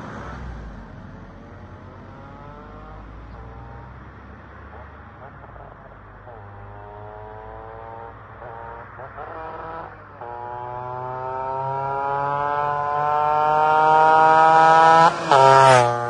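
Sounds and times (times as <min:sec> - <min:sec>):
scooter engine accelerating past: 0:04.7 - 0:16.0.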